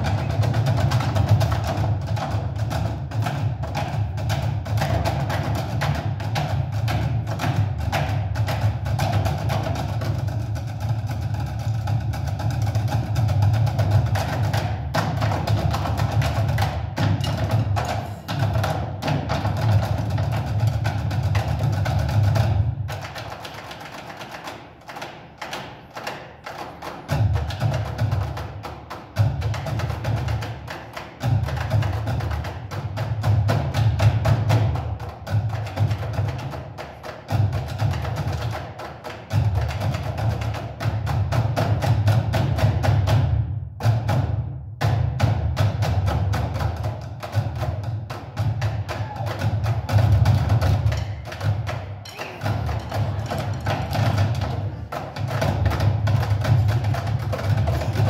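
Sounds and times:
sticks drumming on plastic barrels: 0.0s - 58.0s.

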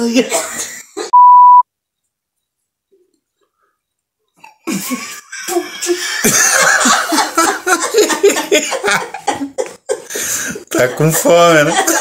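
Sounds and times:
people laughing heartily: 4.6s - 12.0s.

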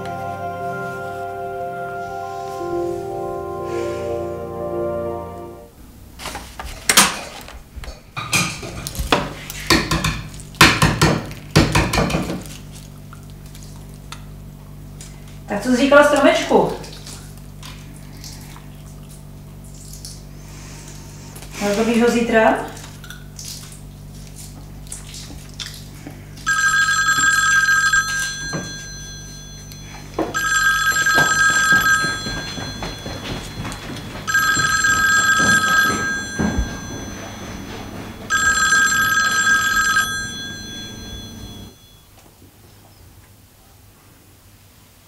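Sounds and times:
low steady hum: 0.0s - 43.0s
telephone ringing: 26.5s - 42.0s
light knocks and clatter: 31.7s - 34.3s.

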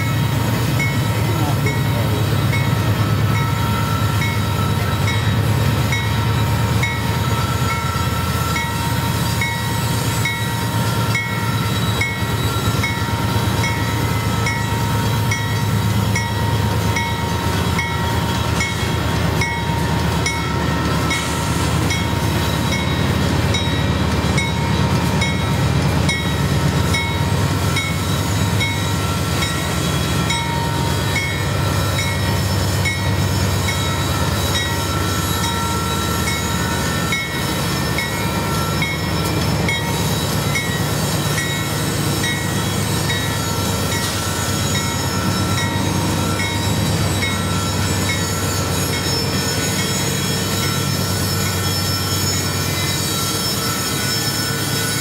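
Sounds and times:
diesel locomotive engines rumbling: 0.0s - 55.0s.

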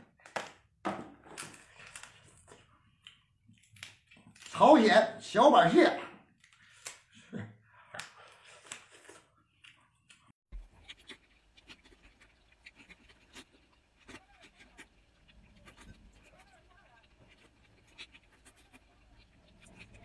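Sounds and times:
chewing mouth clicks and smacks: 1.7s - 4.5s, 7.9s - 20.0s.

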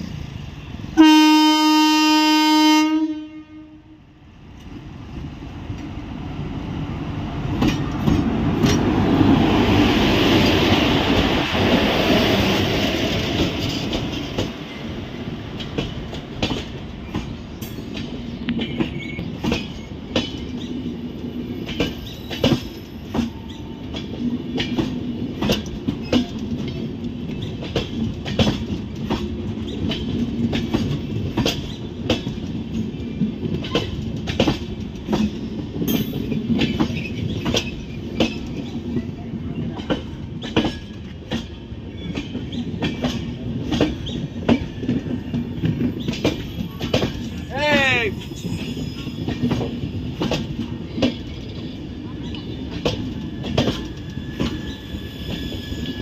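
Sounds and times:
locomotive horn blast: 1.0s - 4.0s
locomotive rushing past: 4.4s - 26.2s
train wheels clacking over rail joints: 7.5s - 8.9s, 15.5s - 20.8s, 21.6s - 38.8s, 39.6s - 47.5s, 48.4s - 55.9s.

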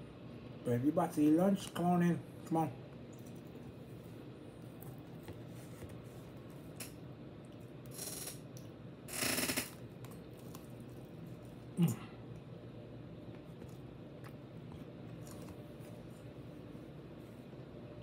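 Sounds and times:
crackly chewing of crispy food: 9.8s - 12.6s, 13.2s - 16.7s.

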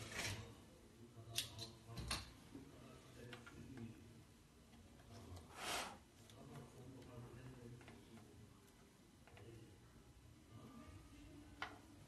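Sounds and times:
faint clicks and taps: 6.2s - 9.6s.

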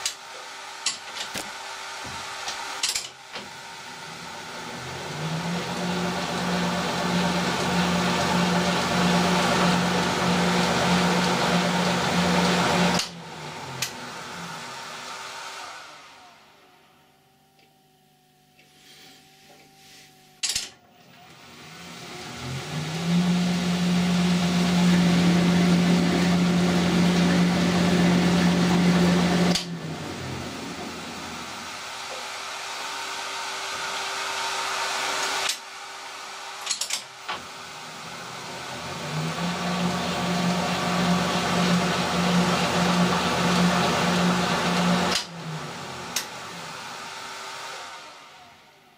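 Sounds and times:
metal lathe humming: 0.0s - 16.7s, 21.0s - 48.2s
lathe control clicks: 36.6s - 37.1s.

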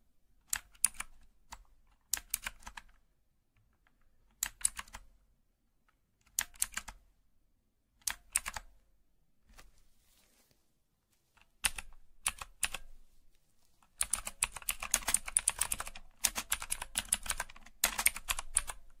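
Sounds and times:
computer keyboard typing: 0.4s - 3.0s, 4.3s - 5.1s, 6.3s - 7.0s, 8.0s - 8.7s, 11.4s - 12.9s, 14.0s - 19.0s.

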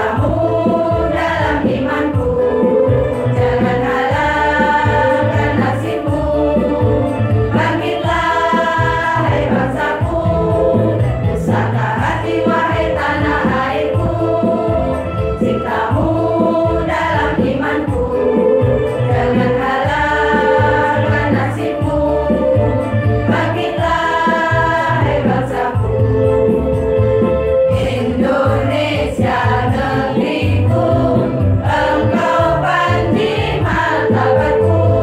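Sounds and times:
women's choir singing: 0.0s - 26.0s, 27.7s - 35.0s.

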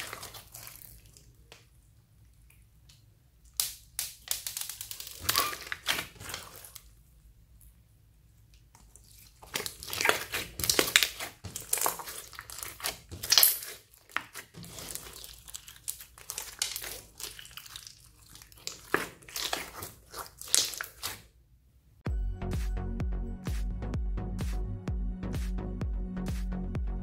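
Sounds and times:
hands squelching slime: 0.0s - 7.0s, 8.5s - 21.3s.

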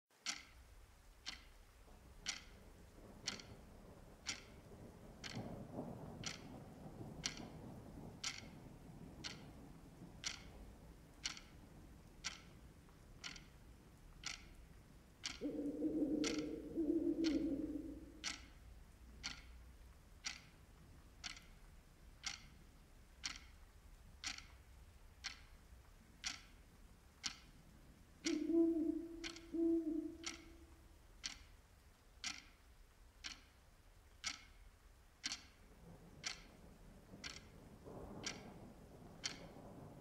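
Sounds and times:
clock ticking: 0.1s - 40.0s
owl hooting: 15.3s - 18.3s, 28.2s - 30.7s.

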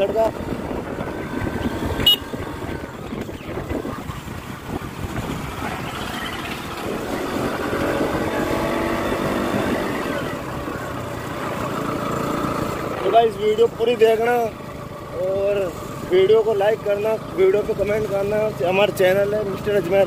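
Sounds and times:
wind buffeting microphone: 0.0s - 10.7s
motorcycle engine: 0.0s - 20.0s.

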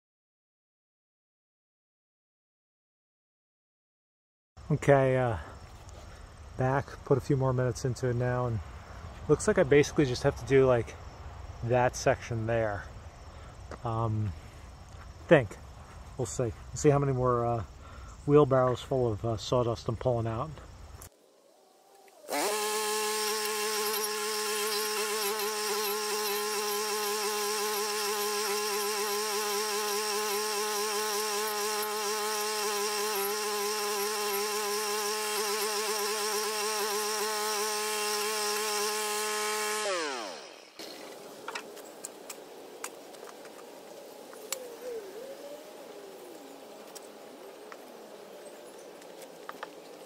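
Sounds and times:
stump grinder engine: 22.3s - 41.0s.

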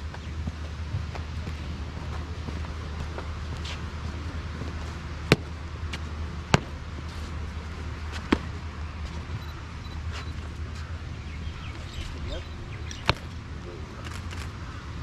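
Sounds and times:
boots stamping on hard court: 0.0s - 9.3s, 11.6s - 13.4s
steady low hum: 0.0s - 15.0s.

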